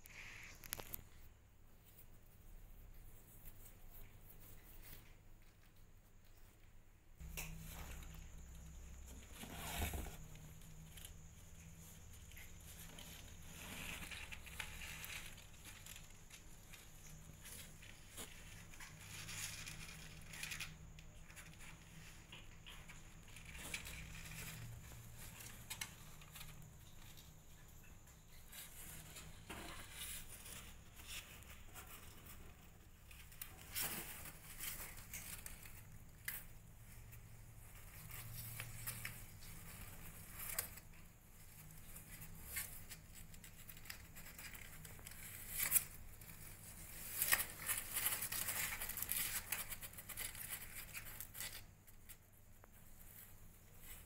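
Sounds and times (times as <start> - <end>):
kittens scratching on cardboard: 7.8 - 11.3.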